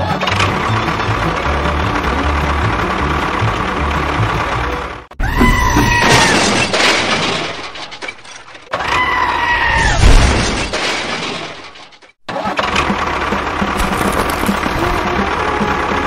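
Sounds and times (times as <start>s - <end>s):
small motor rattling: 12.7s - 16.0s.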